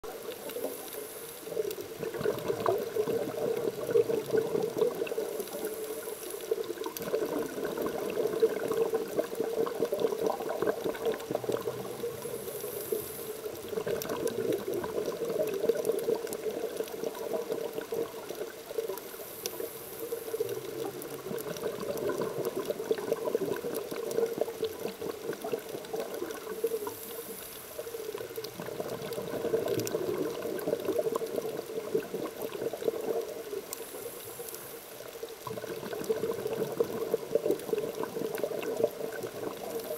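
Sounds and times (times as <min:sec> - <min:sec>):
exhaled bubbles gurgling: 0:00.0 - 0:39.9
regulator inhalation hiss: 0:12.1 - 0:13.5.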